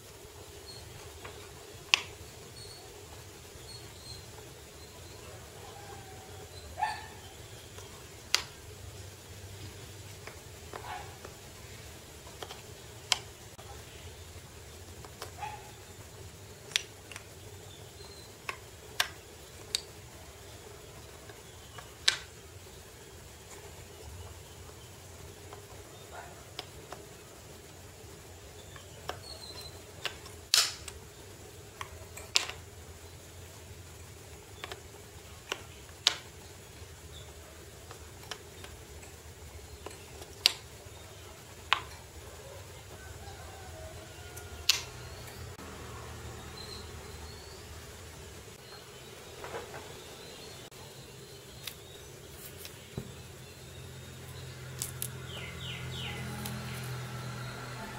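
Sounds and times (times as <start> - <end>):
low steady hum: 0.0 - 57.9
wooden puzzle pieces clicking: 1.2 - 2.2, 7.6 - 8.7, 12.2 - 13.5, 16.6 - 17.4, 18.4 - 20.1, 21.1 - 22.4, 25.3 - 27.2, 28.7 - 31.0, 31.7 - 32.8, 34.0 - 40.8, 41.4 - 42.2, 44.4 - 45.6, 54.8 - 55.2
wooden puzzle pieces clacking: 16.6 - 17.4, 21.1 - 22.4, 28.7 - 31.0, 31.7 - 32.7, 34.6 - 36.4, 44.6 - 45.0.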